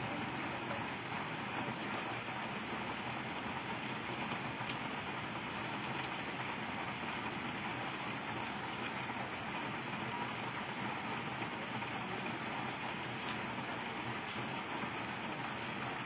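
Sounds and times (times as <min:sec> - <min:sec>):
steady rain: 0:00.0 - 0:16.0.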